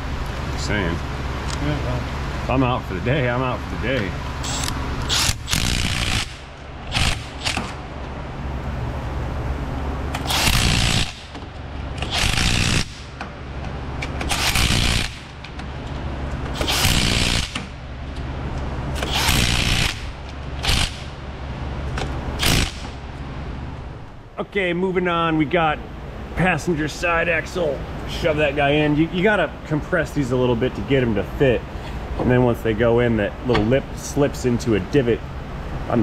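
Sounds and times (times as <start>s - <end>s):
cordless ratchet running: 4.4s - 7.8s, 12.0s - 13.0s, 14.2s - 15.3s, 16.6s - 17.7s, 19.0s - 21.1s.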